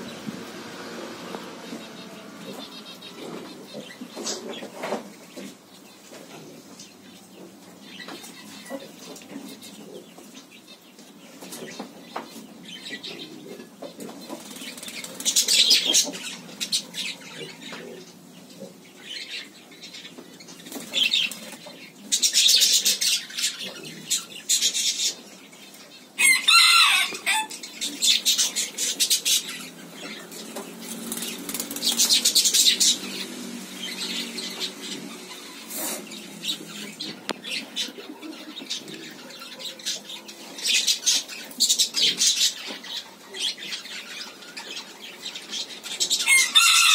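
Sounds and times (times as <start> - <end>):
bird wings flapping: 30.9 - 32.3.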